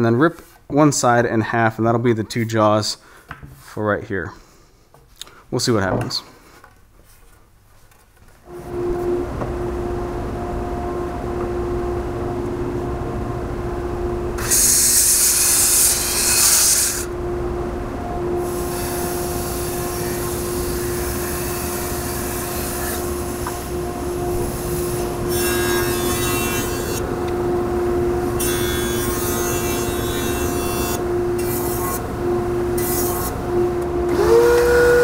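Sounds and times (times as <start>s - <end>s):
steady machine hum: 8.4s - 35.0s
saw cutting wood: 14.4s - 17.2s, 18.4s - 27.1s, 28.4s - 32.1s, 32.8s - 33.4s.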